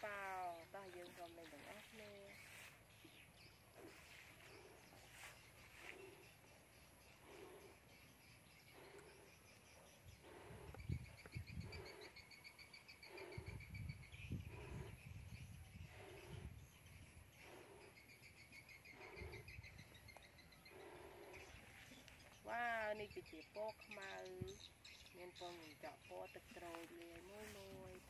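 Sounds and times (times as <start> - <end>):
birdsong with chirps and trills: 0.0 - 28.0
low rumbling puffs: 13.0 - 16.7.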